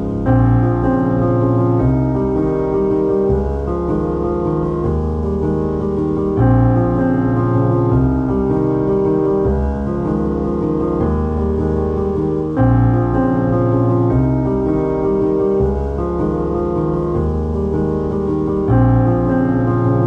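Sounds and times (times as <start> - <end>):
piano playing held chords: 0.0 - 20.0.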